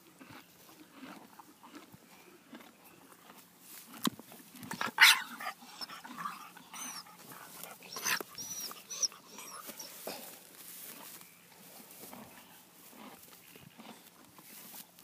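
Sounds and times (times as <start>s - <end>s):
dog yelping: 4.8s - 10.0s
dog whining: 4.9s - 10.2s.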